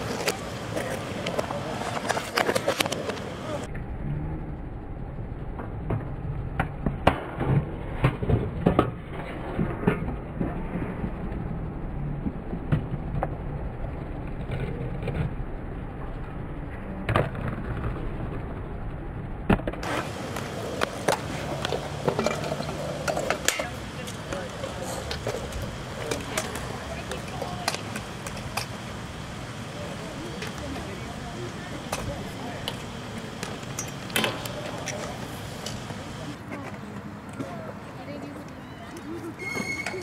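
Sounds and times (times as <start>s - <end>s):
skateboard wheels rolling on ramps: 0.0s - 40.0s
skateboard decks clacking on ramp: 19.6s - 28.8s.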